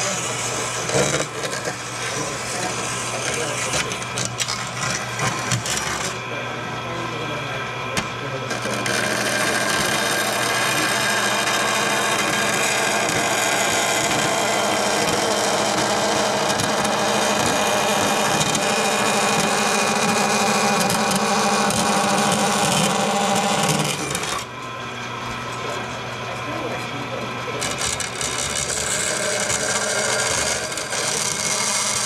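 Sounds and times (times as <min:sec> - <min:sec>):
bandsaw cutting aluminum sheet: 0:00.0 - 0:06.2, 0:08.4 - 0:24.5, 0:27.5 - 0:32.0.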